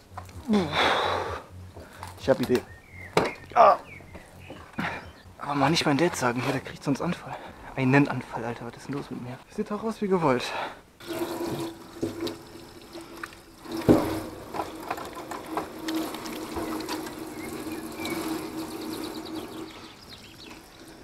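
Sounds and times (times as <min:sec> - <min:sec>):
hands washing with splashes: 0:11.0 - 0:21.0
tap water running into sink: 0:11.0 - 0:21.0.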